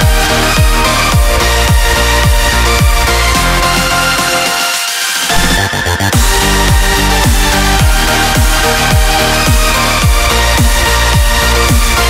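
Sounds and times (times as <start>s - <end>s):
deep kick drum: 0.0s - 3.6s, 5.3s - 12.0s
sustained synth chords: 5.3s - 12.0s.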